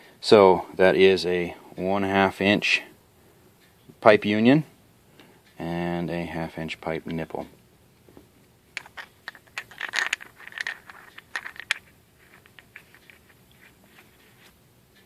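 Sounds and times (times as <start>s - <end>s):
metal pipe fittings clinking: 8.8s - 14.5s.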